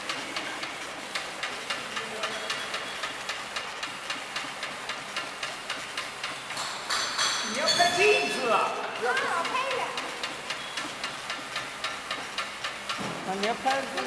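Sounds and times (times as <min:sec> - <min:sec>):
regular mechanical clicks: 0:00.0 - 0:06.8, 0:08.8 - 0:14.0
labeling machine running: 0:07.6 - 0:14.0.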